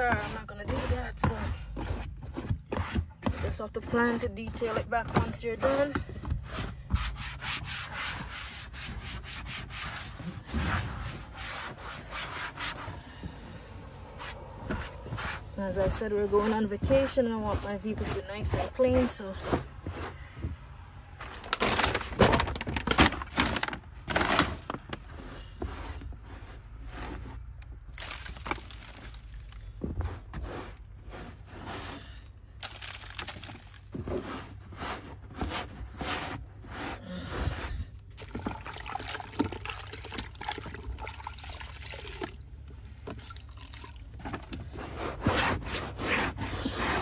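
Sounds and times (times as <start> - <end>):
wet scrubbing and wiping: 0.0 - 20.3, 44.3 - 47.0
water sloshing in a bucket: 27.8 - 30.0, 31.0 - 36.0, 37.5 - 47.0.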